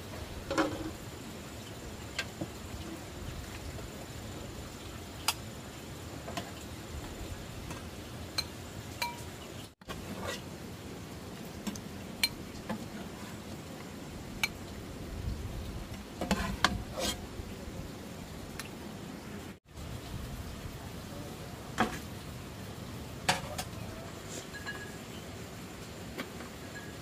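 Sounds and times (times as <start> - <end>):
low background noise: 0.0 - 27.0
metal utensils clinking on dishes: 8.4 - 9.3, 23.3 - 25.2.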